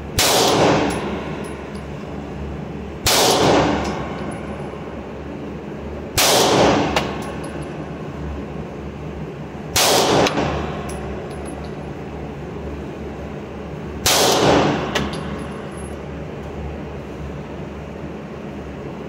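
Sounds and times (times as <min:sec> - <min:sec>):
steady low hum: 0:00.0 - 0:19.0
pistol shots echoing: 0:00.2 - 0:01.0, 0:03.1 - 0:03.9, 0:06.2 - 0:07.0, 0:09.8 - 0:10.5.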